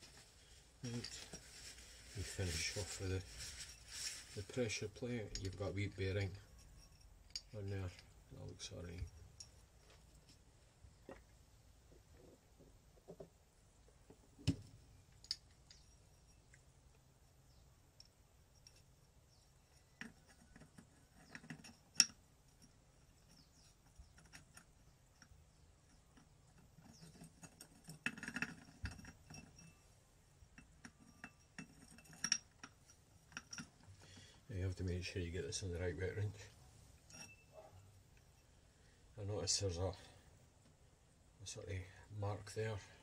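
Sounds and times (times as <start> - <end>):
small metal rattles: 0.8 - 10.4, 14.7 - 34.3, 36.1 - 38.6
metallic clinks and clicks: 5.1 - 9.8, 18.0 - 29.9, 30.5 - 34.0, 37.0 - 38.4.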